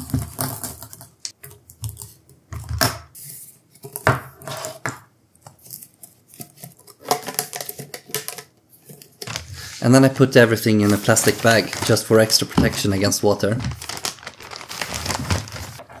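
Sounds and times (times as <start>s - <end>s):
hose rustling and rubbing: 9.3s - 16.0s.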